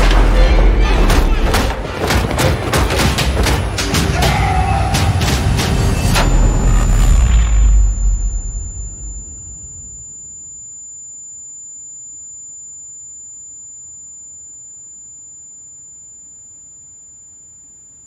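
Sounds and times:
high-pitched ringing tone: 6.0s - 18.0s.

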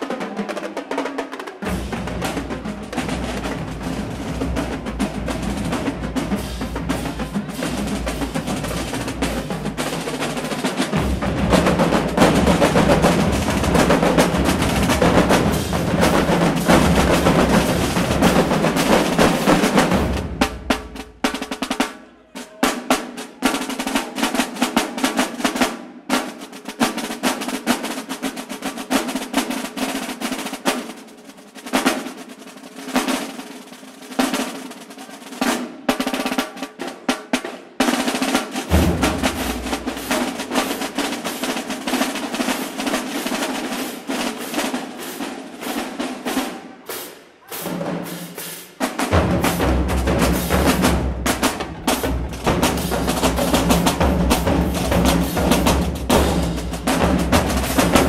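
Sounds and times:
snare drums beating rolls: 0.0s - 58.0s
marching bass drums pounding: 1.6s - 21.8s, 38.4s - 46.5s, 47.5s - 58.0s.

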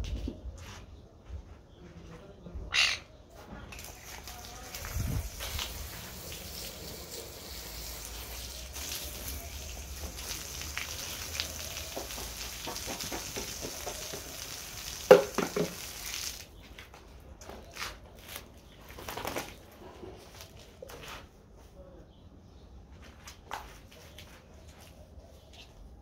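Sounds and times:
garden hose spraying water: 3.7s - 16.6s.

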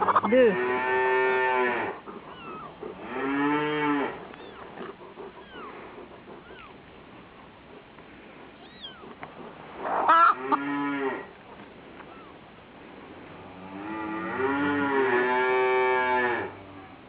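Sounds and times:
cow mooing: 0.5s - 2.0s, 3.0s - 4.2s, 10.2s - 11.3s, 13.5s - 16.9s.

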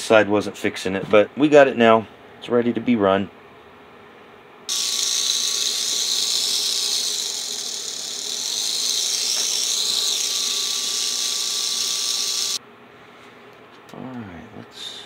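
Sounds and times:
model train motor whirring: 4.7s - 12.6s.

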